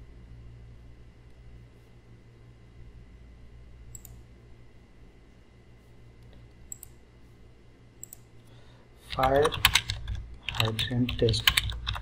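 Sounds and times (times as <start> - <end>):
low room hum: 0.0 - 12.0
computer mouse clicks: 3.9 - 4.2, 6.2 - 7.0, 8.0 - 8.3, 9.1 - 12.0.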